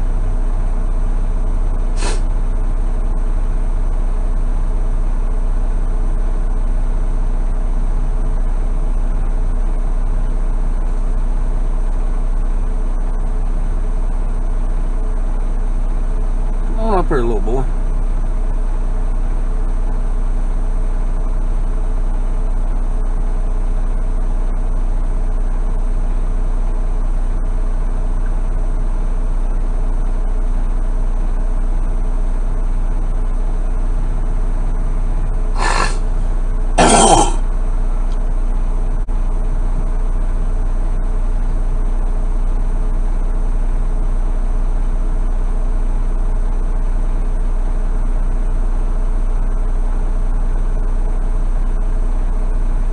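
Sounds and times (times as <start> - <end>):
person clearing throat: 2.0 - 2.2, 35.6 - 36.2, 36.8 - 37.4.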